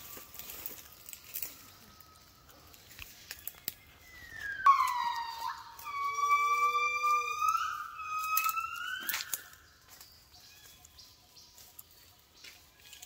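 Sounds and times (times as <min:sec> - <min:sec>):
faint forest background: 0:00.0 - 0:13.0
gibbon singing: 0:04.6 - 0:09.4.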